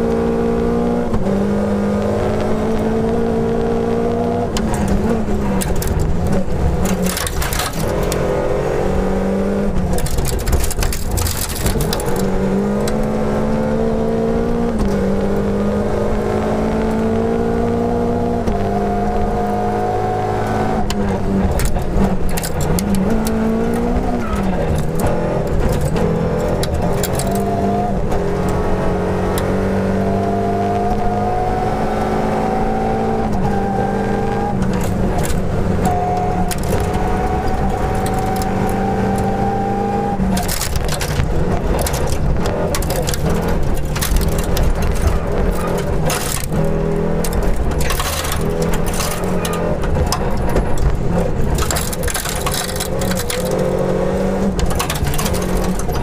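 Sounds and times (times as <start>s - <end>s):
car engine revving: 0.0s - 56.0s
gravel clattering under car: 9.6s - 13.2s, 20.8s - 28.6s, 39.9s - 56.0s.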